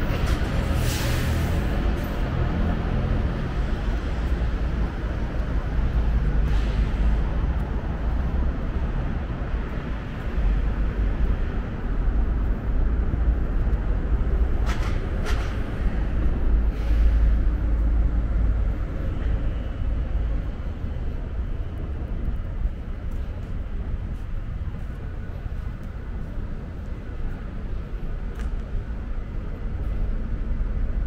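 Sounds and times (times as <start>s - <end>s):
rumble of passing vehicles: 0.0s - 31.0s.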